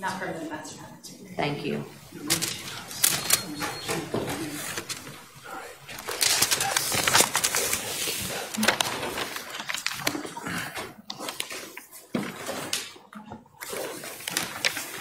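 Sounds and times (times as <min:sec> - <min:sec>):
faint murmured voices: 0:00.0 - 0:09.2
shuffling: 0:00.0 - 0:10.0.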